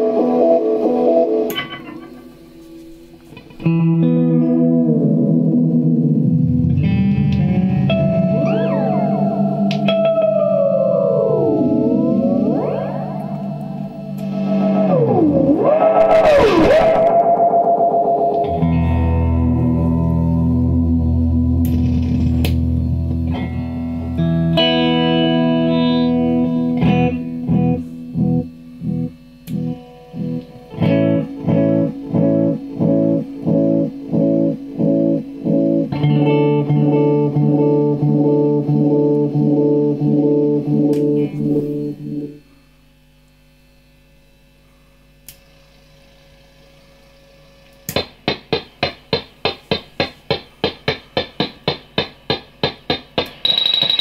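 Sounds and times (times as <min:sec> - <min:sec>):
electric guitar with delay repeats: 0:00.0 - 0:02.6, 0:03.5 - 0:42.4.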